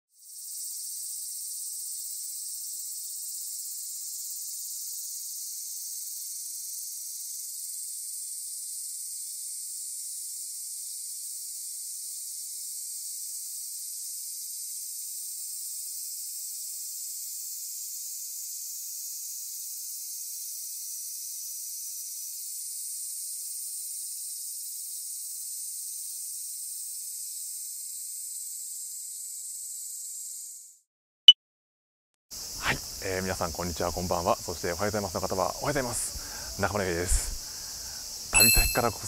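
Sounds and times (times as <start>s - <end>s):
high-pitched hiss: 32.4s - 39.0s.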